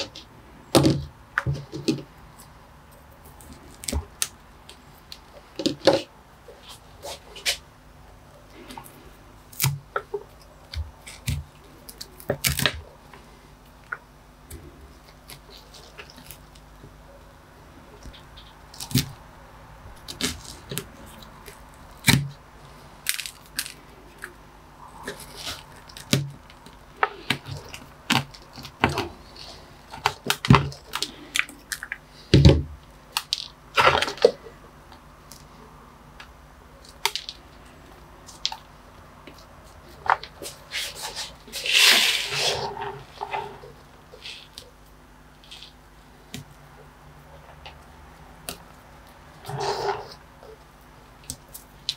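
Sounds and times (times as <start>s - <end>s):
metal tool scraping gritty soil: 40.4s - 44.6s, 49.4s - 50.2s.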